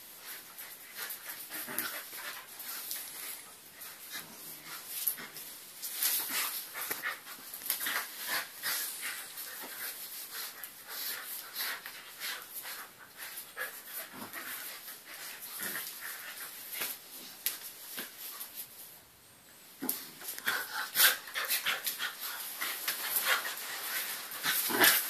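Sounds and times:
paws scuffling on tile: 0:00.1 - 0:19.0, 0:19.8 - 0:25.0
dogs panting: 0:20.2 - 0:25.0.

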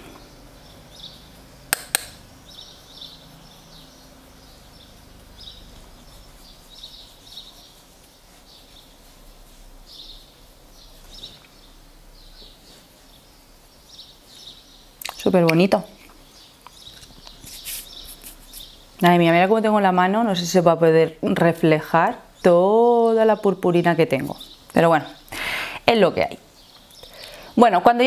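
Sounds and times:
sharp clicks: 0:01.7 - 0:02.2
makeup brush swishing: 0:04.7 - 0:11.4, 0:17.4 - 0:18.8.

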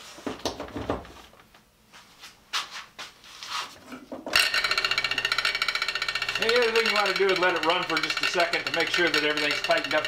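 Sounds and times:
brush wheel spinning: 0:04.3 - 0:10.0
electric motor switching on: 0:04.3 - 0:10.0.

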